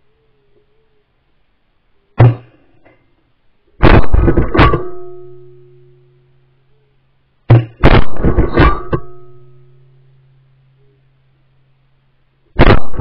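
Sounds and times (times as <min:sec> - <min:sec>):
shotgun shots: 0:03.8 - 0:05.1, 0:07.8 - 0:09.1, 0:12.6 - 0:13.0.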